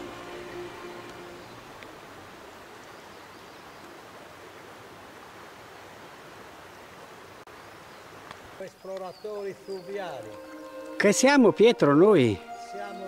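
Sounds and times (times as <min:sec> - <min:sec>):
flowing river water: 0:00.0 - 0:13.0.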